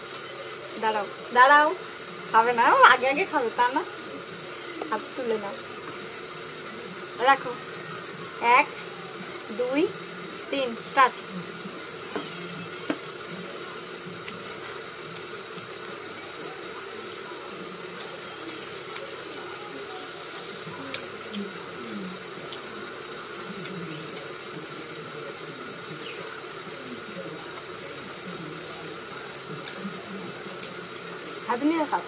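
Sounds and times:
faint clicks of eating: 14.1s - 15.7s, 17.9s - 19.5s, 20.3s - 21.6s, 22.4s - 22.8s, 23.5s - 26.4s, 27.2s - 31.4s.

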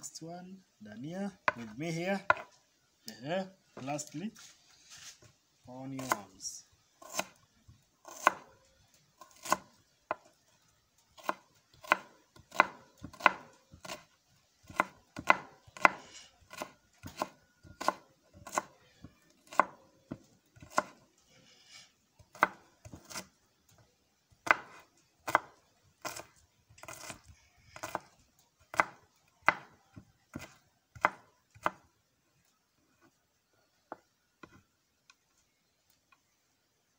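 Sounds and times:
knife chopping on cutting board: 2.3s - 2.5s, 8.1s - 8.4s, 11.2s - 14.0s, 14.7s - 18.7s, 20.6s - 21.0s, 24.4s - 27.2s, 27.8s - 28.1s, 28.7s - 29.7s, 30.3s - 31.8s.

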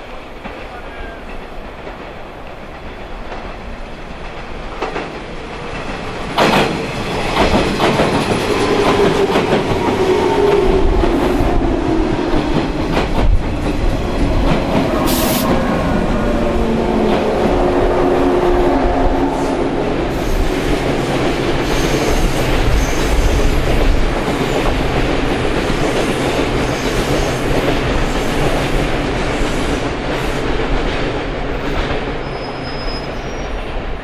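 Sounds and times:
train wheels clacking on rail joints: 0.0s - 17.7s, 19.9s - 34.0s
train hum falling in pitch: 6.4s - 23.5s
short hiss: 15.0s - 15.6s.

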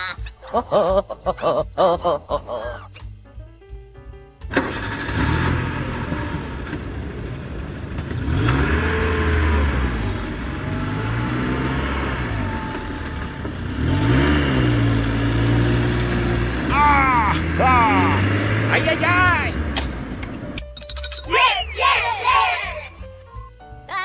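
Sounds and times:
heavy vehicle engine revving: 4.5s - 20.6s.

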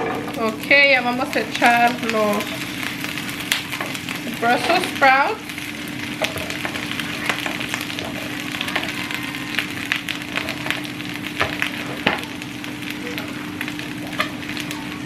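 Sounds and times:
vegetables sizzling in hot oil: 0.0s - 15.0s
sharp crackling pops: 1.2s - 4.4s.

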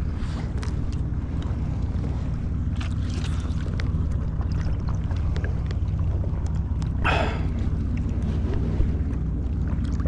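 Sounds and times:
wind rumbling on microphone: 0.0s - 10.0s.

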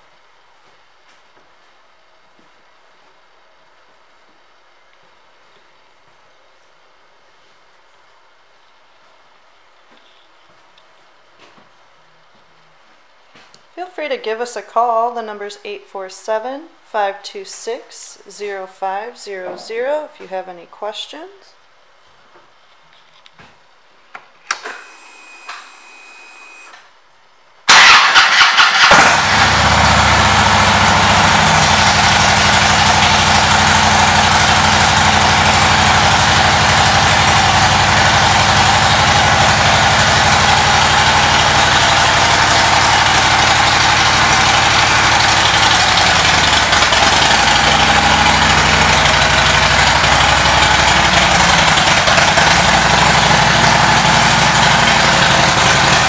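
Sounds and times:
motorcycle engine starting and idling: 27.7s - 56.0s.

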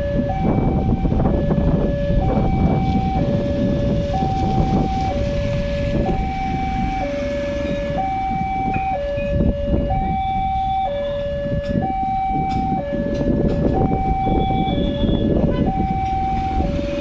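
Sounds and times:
two-tone crossing alarm: 0.0s - 17.0s
motorcycle engines: 0.3s - 17.0s.

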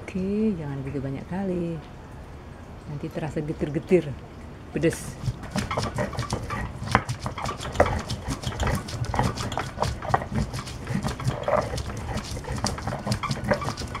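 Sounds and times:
stone pestle grinding on stone: 5.1s - 14.0s.

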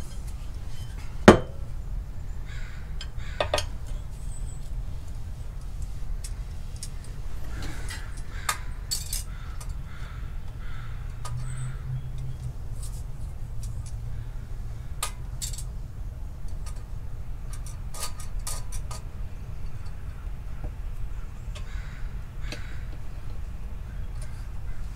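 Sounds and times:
small tools clinking: 8.9s - 9.8s.

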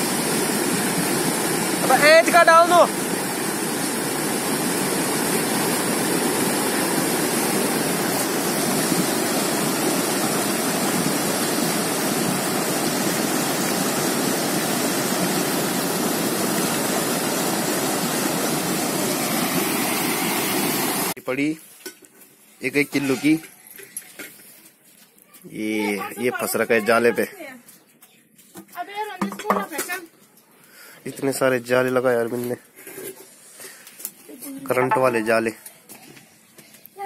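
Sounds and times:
river rushing over boulders: 0.0s - 21.2s.

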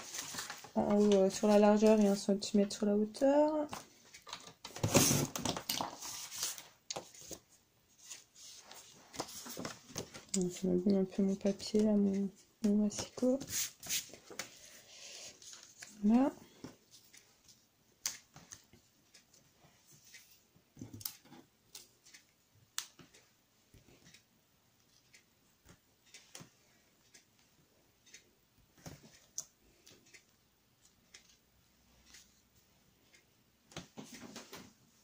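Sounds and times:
paper and card rustling: 0.0s - 2.4s, 3.7s - 11.9s, 12.8s - 16.3s.

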